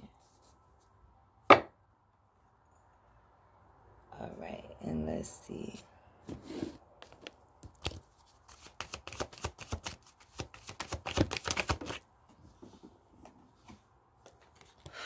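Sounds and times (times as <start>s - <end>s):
cards being shuffled: 7.0s - 12.1s, 14.3s - 14.9s.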